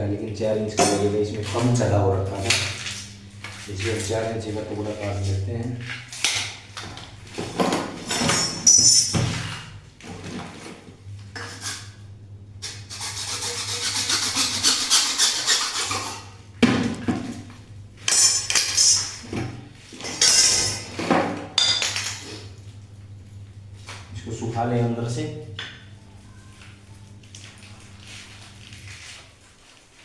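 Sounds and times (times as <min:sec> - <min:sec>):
hacksaw cutting pipe: 0:12.6 - 0:16.3.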